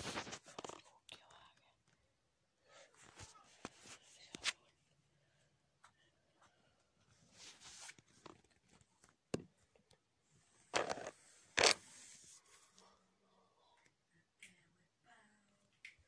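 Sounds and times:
fabric rustling on microphone: 0:00.0 - 0:00.8
phone scraping: 0:10.8 - 0:12.1.

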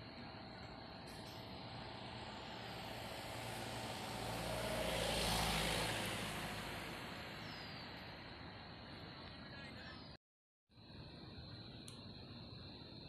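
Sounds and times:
vehicle passing by: 0:00.0 - 0:09.2.

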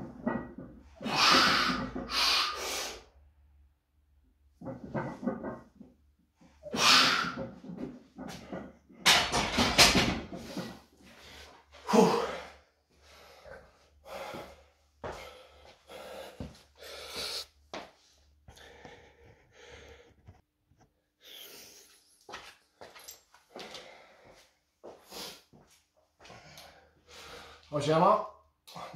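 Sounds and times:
heavy gasping breaths: 0:10.4 - 0:17.5.

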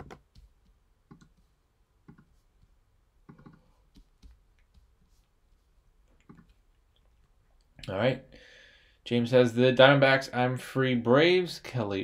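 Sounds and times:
mouse and keyboard clicks: 0:02.0 - 0:02.4, 0:03.2 - 0:04.7, 0:06.2 - 0:06.6.

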